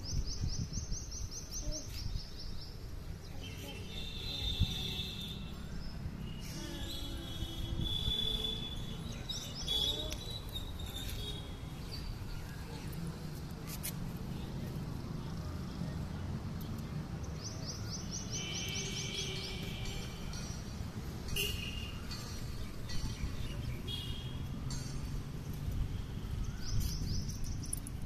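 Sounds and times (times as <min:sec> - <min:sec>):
birds chirping: 0:16.6 - 0:24.7.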